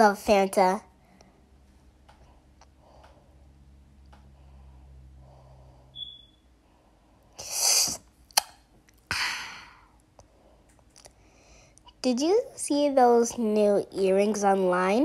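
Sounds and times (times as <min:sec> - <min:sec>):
person breathy hissing bursts: 0:07.4 - 0:08.0.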